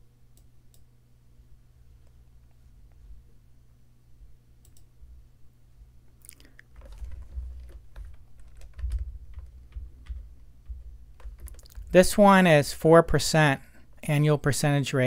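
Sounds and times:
steady low hum: 0.0 - 15.0
low thumps: 6.9 - 12.0.

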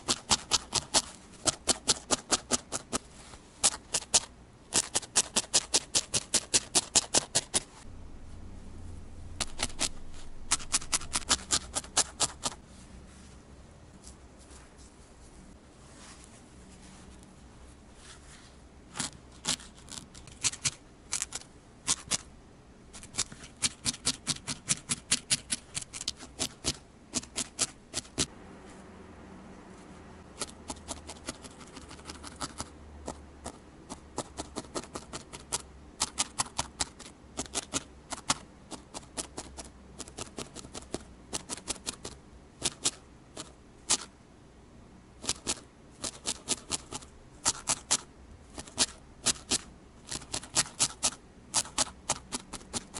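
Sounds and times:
felting needle clicking through wool: 0.0 - 7.8, 9.4 - 12.6, 18.9 - 22.3, 22.9 - 28.3, 30.3 - 44.1, 45.2 - 52.9.

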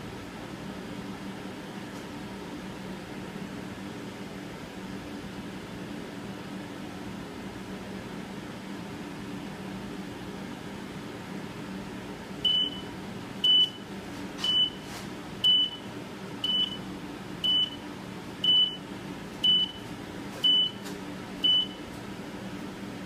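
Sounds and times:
timer beeping: 15.4 - 15.8, 16.4 - 16.8, 17.4 - 17.8, 18.4 - 18.8, 19.4 - 19.8.

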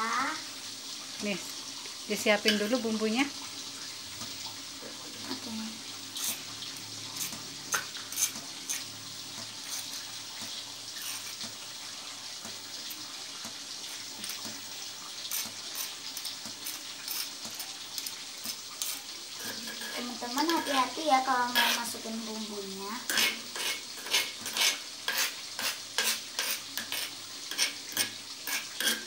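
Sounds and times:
metal spoon scraping stone mortar: 7.2 - 8.9, 15.3 - 17.4, 18.0 - 20.7, 21.5 - 22.0, 23.1 - 29.0.

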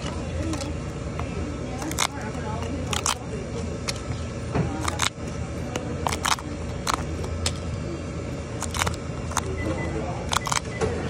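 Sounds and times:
low steady hum: 0.0 - 11.0
paper tabs tearing: 1.7 - 4.2, 4.8 - 7.6, 8.6 - 9.5, 10.3 - 10.6.

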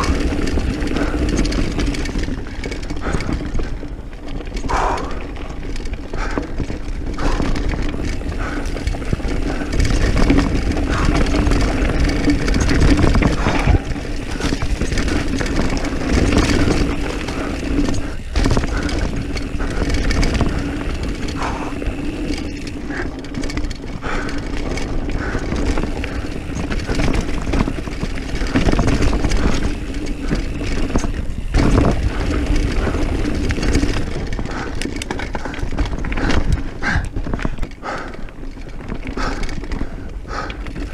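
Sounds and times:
bike knocking and rattling: 0.0 - 40.9
bike tyre rumble on dirt: 0.0 - 40.9
wind noise: 0.0 - 40.9.

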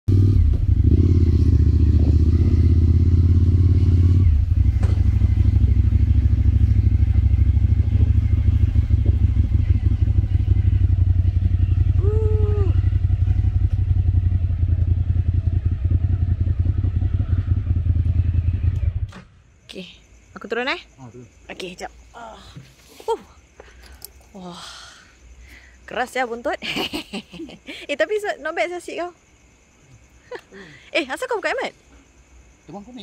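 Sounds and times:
motorcycle engine running: 0.1 - 19.1.

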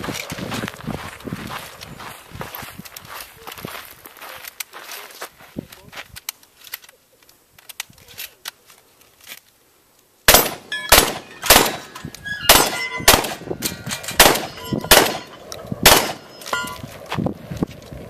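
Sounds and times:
shotgun shots: 10.3 - 16.4
steel targets clanging: 10.3 - 16.9.

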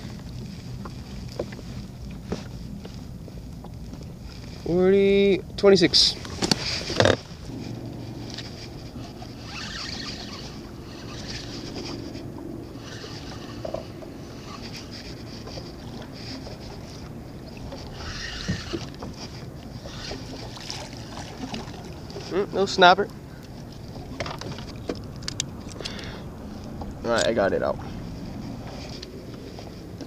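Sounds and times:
water around a boat: 0.0 - 30.0
wind: 0.0 - 30.0
fishing reel cranking: 6.8 - 15.7, 17.7 - 20.6.

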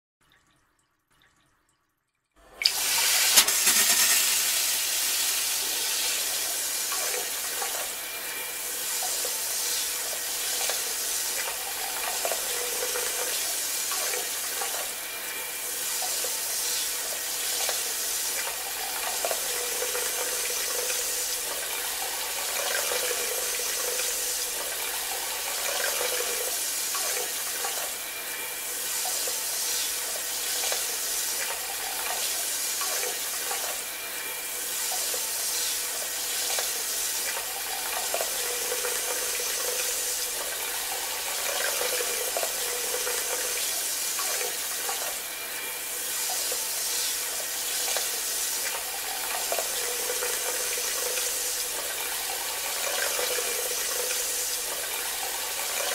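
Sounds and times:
water spraying into toilet bowl: 2.5 - 14.9.

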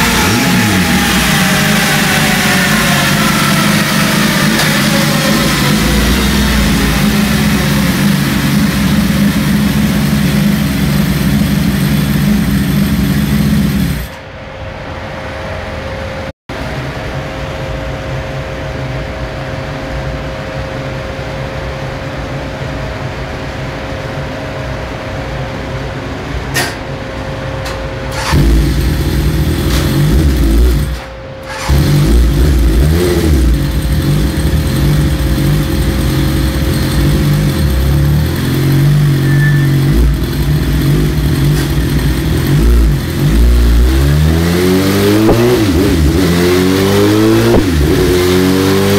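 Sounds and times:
motorcycle engine on dynamometer: 0.0 - 14.3, 27.6 - 48.9.

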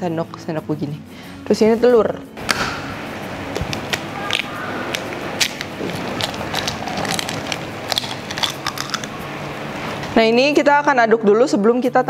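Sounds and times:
egg shell cracking: 3.5 - 9.2.

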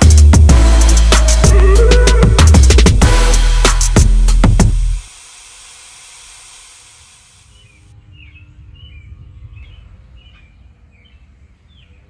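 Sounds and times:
water mister spraying: 0.5 - 7.8
small birds chirping: 7.4 - 12.0.

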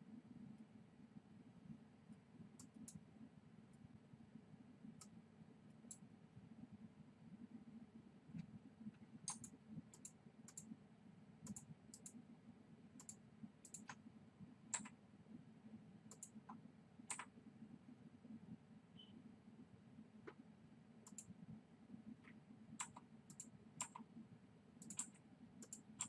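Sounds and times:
computer mouse clicks: 2.6 - 3.0, 5.8 - 6.0, 9.2 - 10.7, 11.4 - 12.2, 13.0 - 14.0, 14.7 - 15.0, 16.1 - 17.3, 21.0 - 21.4, 22.2 - 24.1, 24.8 - 26.0.

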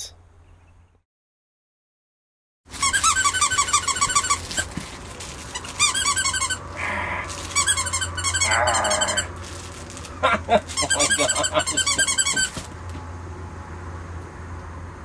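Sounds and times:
squeaky dog toy squeaking: 2.7 - 6.7, 7.4 - 9.3, 10.7 - 12.7.

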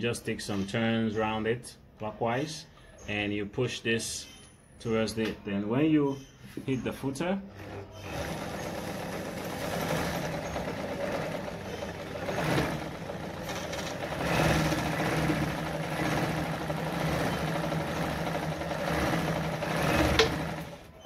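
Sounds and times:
sewing machine motor whirring: 7.5 - 21.0.

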